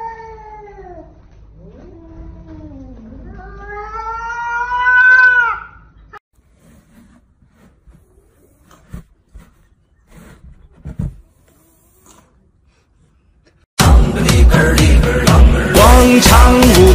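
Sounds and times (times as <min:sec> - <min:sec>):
cat meowing: 0:03.3 - 0:05.8.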